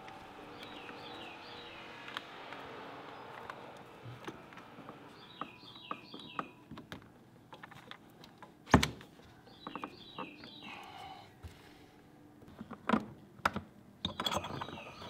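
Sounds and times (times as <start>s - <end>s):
bird chirping: 0.0s - 6.8s, 9.4s - 11.2s, 14.1s - 15.0s.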